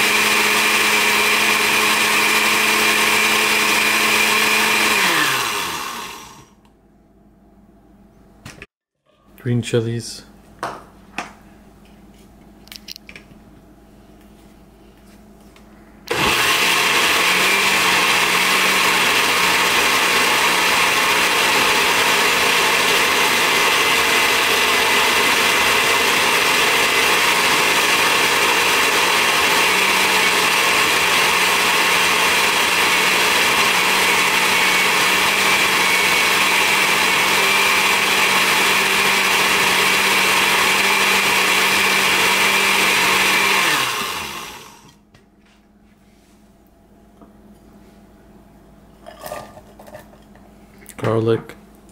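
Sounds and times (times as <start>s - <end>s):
blender motor running: 0.0s - 6.6s, 16.1s - 45.0s.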